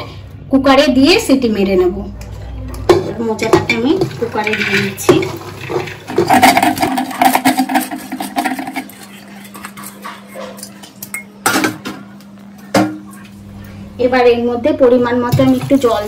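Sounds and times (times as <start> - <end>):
metal pot clinking and rattling: 2.9 - 11.3.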